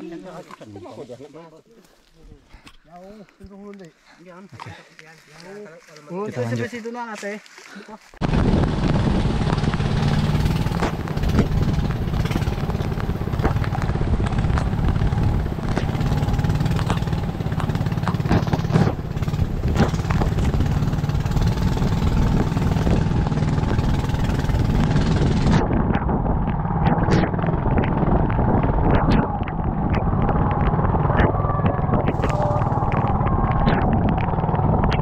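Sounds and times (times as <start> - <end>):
small boat engine running: 8.2 - 35.0
sharp clicks: 9.4 - 35.0.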